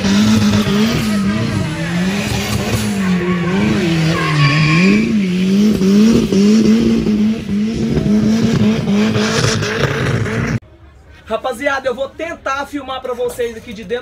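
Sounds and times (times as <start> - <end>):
tyres squealing: 0.0 - 5.6
car engine revving high: 0.0 - 10.6.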